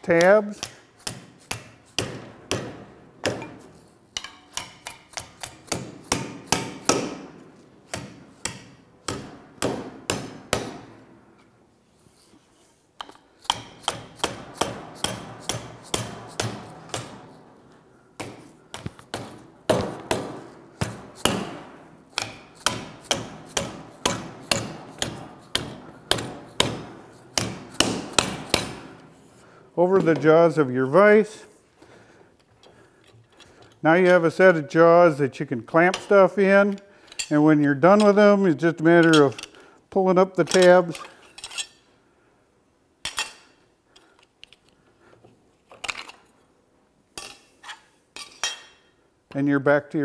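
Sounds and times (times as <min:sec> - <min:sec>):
mallet striking aluminium sheet: 0:19.1 - 0:29.0.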